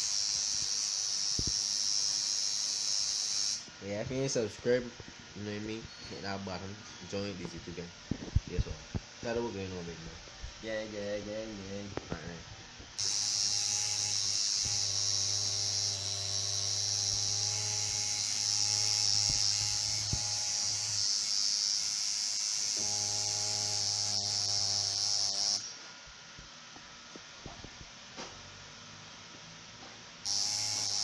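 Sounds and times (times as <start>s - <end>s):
tattoo machine buzzing: 0.0s - 4.4s, 12.9s - 25.8s, 30.2s - 31.0s.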